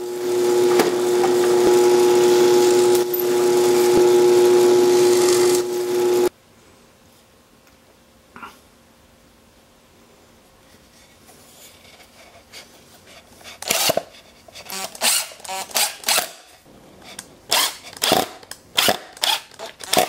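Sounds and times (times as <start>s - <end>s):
power drill driving screws into wood: 13.6s - 16.5s, 17.5s - 20.0s.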